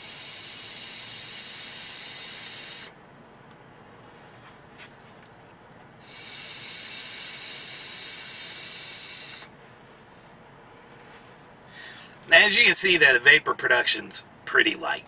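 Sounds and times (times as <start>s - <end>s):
air hissing through vape tank: 0.0s - 3.0s, 6.0s - 9.5s.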